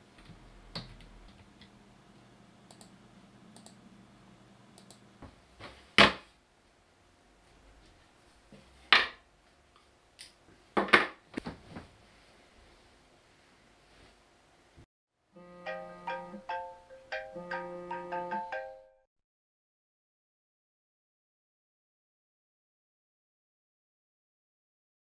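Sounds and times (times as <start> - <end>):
computer keyboard clicks: 2.7 - 3.0, 3.6 - 3.8.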